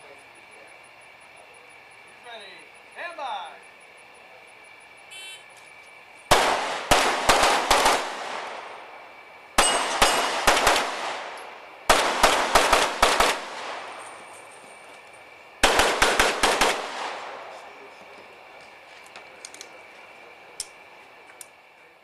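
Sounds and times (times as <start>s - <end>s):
pistol shots: 6.3s - 9.0s, 9.6s - 14.3s, 15.6s - 17.6s.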